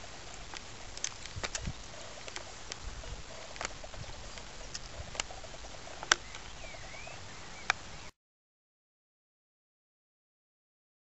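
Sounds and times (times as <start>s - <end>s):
faint outdoor hiss: 0.0s - 8.2s
sharp clicks: 0.3s - 6.6s.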